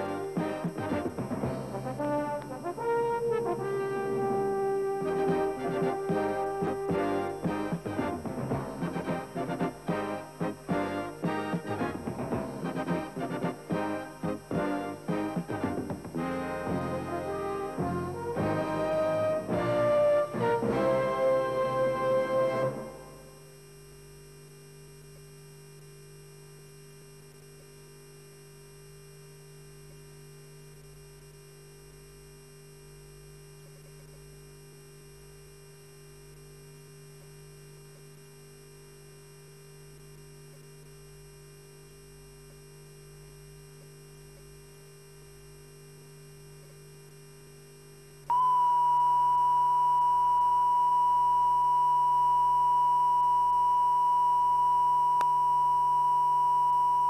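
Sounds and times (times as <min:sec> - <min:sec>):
low electrical hum: 0:00.0 - 0:57.0
steady test tone: 0:48.3 - 0:57.0.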